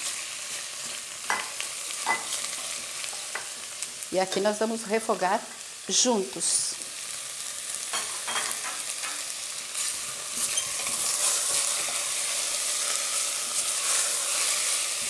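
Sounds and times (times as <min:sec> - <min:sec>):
chicken sizzling in a pan: 0:00.0 - 0:15.0
spoon scraping a pan: 0:08.0 - 0:15.0.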